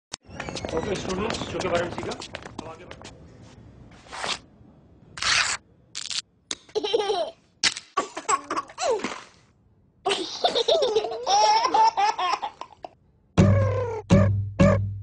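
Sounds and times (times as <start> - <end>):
babies laughing: 6.8 - 7.4, 10.1 - 13.0.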